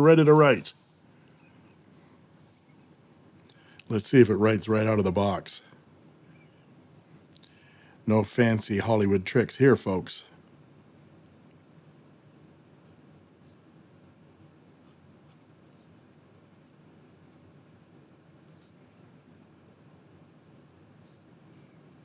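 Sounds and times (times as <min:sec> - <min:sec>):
pen nib scratching paper: 0:14.5 - 0:22.0.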